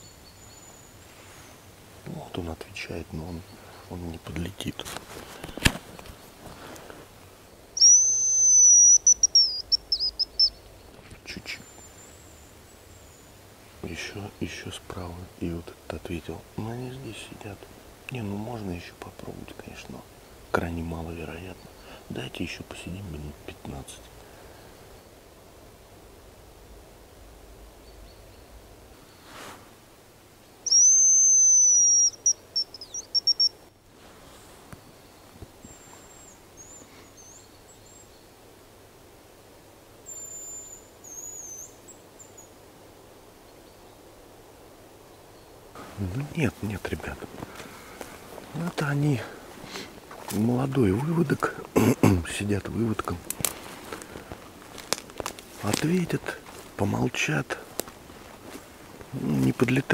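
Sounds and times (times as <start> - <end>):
bird decoy whistle: 7.8 - 10.5, 30.7 - 33.6.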